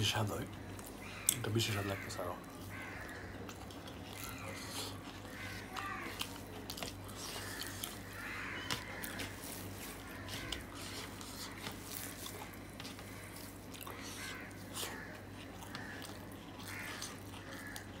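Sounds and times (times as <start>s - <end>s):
fingers squishing wet food: 0.4s - 18.0s.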